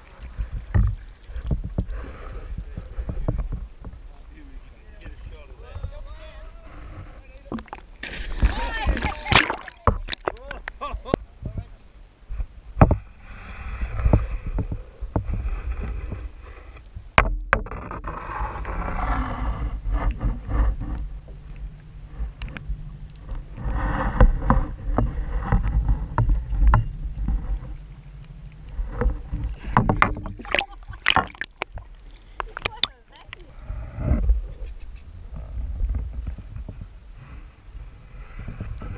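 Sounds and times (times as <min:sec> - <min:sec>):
water washing and bubbling: 0:00.0 - 0:03.7, 0:07.4 - 0:10.9, 0:18.8 - 0:34.2
muffled boat hum underwater: 0:00.0 - 0:38.9.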